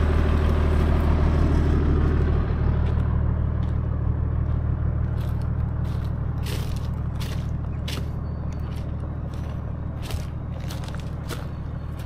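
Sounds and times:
car engine running: 0.0s - 12.0s
tyres crunching over stones: 4.4s - 12.0s.

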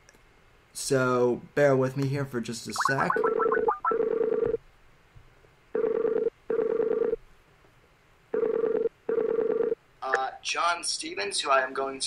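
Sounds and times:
warbling call ringing tone: 2.8s - 4.4s.

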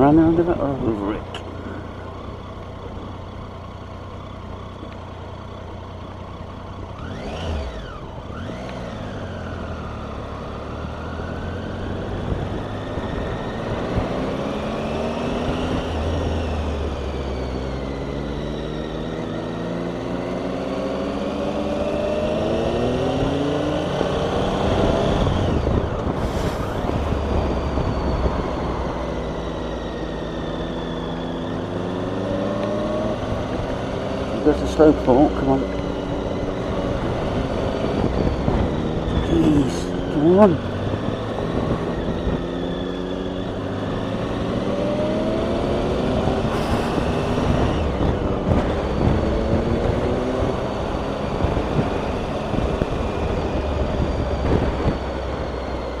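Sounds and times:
motorcycle engine: 0.0s - 56.0s
wind rush: 24.6s - 29.2s, 46.2s - 55.2s.

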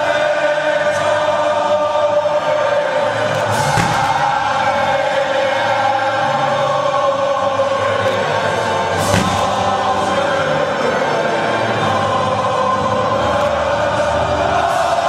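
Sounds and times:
choral music: 0.0s - 15.0s
firework thump: 3.4s - 5.0s, 9.0s - 10.2s.

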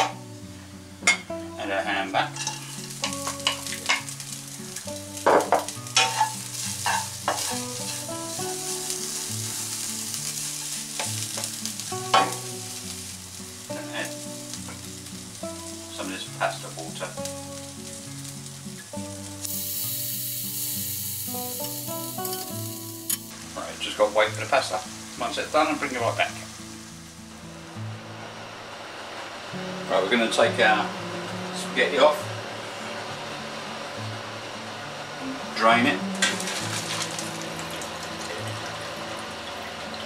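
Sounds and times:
ham sizzling in frying pan: 0.0s - 40.0s
stirring scrapes and taps: 6.0s - 8.0s.

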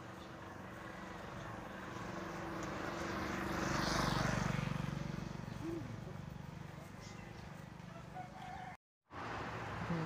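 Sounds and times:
vehicle engine passing: 0.0s - 7.9s.

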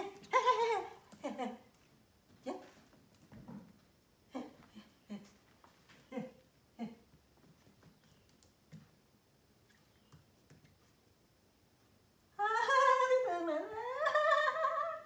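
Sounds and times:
woman vocalising sing-song: 12.4s - 15.0s.

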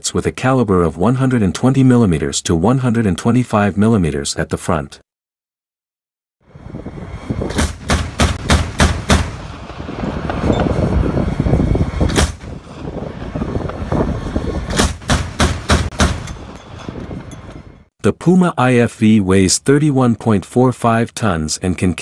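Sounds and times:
armoured vehicle rumbling: 6.4s - 17.9s
gunfire bangs: 7.5s - 9.6s, 12.1s - 12.6s, 14.7s - 16.8s.

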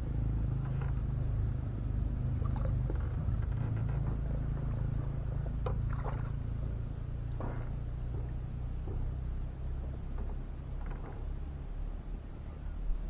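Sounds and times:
steady low rumble: 0.0s - 13.0s
small water splashes: 2.2s - 3.2s, 4.7s - 10.1s.

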